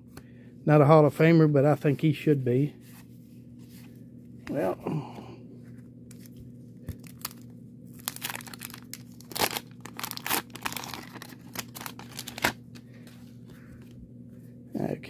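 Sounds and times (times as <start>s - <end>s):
steady low hum: 0.0s - 15.0s
wax paper wrapper tearing and crinkling: 6.9s - 12.7s.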